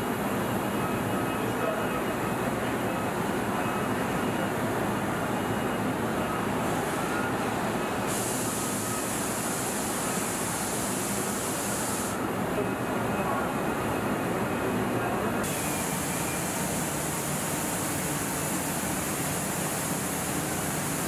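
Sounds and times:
paint booth machine noise: 0:05.5 - 0:13.4, 0:14.0 - 0:21.0
spray guns hissing: 0:08.1 - 0:12.2, 0:15.5 - 0:21.0.

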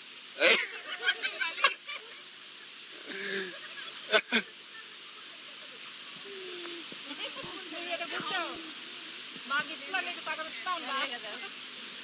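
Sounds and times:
women laughing and murmuring: 0:00.6 - 0:09.2.

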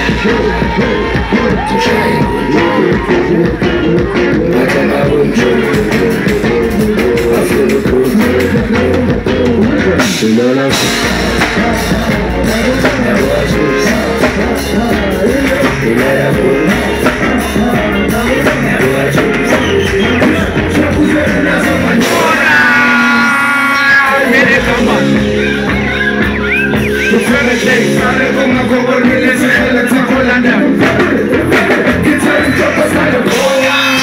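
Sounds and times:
bass guitar: 0:00.0 - 0:34.0
drum kit: 0:00.0 - 0:34.0
vocals on microphones: 0:00.0 - 0:34.0.

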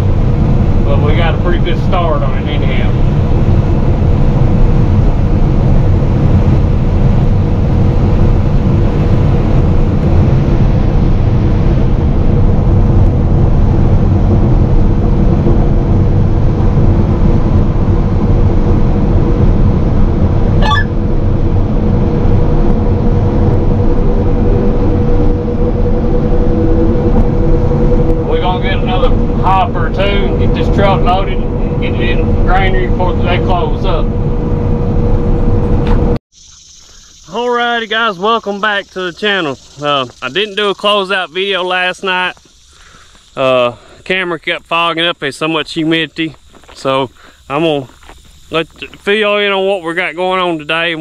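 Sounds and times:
combine harvester running: 0:00.0 - 0:41.1.

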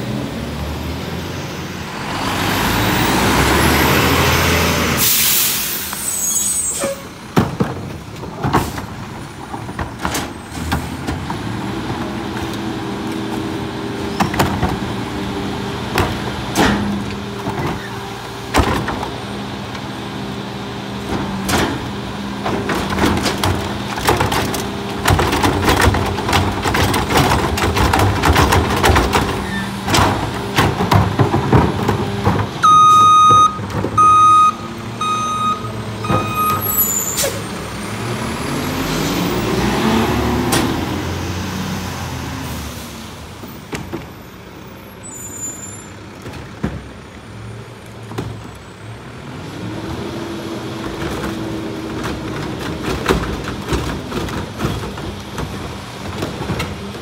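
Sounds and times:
truck engine and hydraulics hum: 0:00.0 - 0:57.0
air brake hiss: 0:05.0 - 0:07.0
trash and carts banging: 0:05.9 - 0:42.4, 0:43.1 - 0:44.8, 0:45.8 - 0:57.0
cart tipped clattering: 0:21.0 - 0:37.0, 0:50.7 - 0:57.0.

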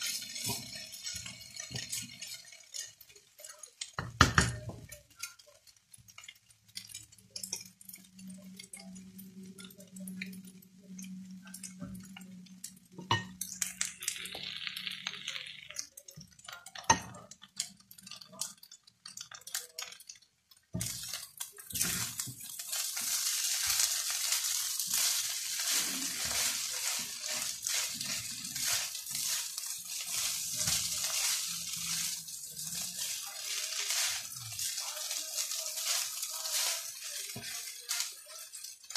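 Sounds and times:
spatula scraping a pan: 0:00.0 - 0:04.2, 0:20.8 - 0:38.9
spatula tapping a pan: 0:00.0 - 0:06.4, 0:20.7 - 0:38.9
rice sizzling: 0:00.0 - 0:38.9.

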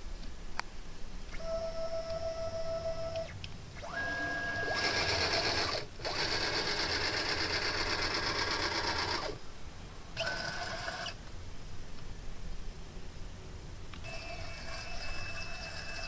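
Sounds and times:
machine axis motors whining: 0:03.2 - 0:09.4, 0:10.2 - 0:11.2, 0:14.0 - 0:16.0.

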